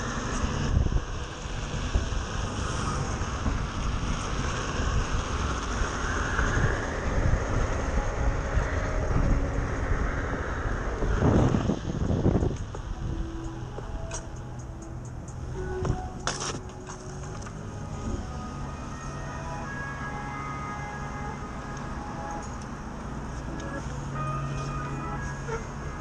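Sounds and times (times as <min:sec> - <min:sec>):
wind buffeting microphone: 0:00.0 - 0:16.8
traffic: 0:00.0 - 0:26.0.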